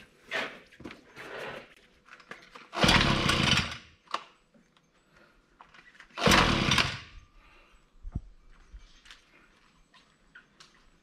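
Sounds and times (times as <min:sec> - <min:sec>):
small engine pull-start bursts: 0:02.7 - 0:03.9, 0:06.1 - 0:07.2.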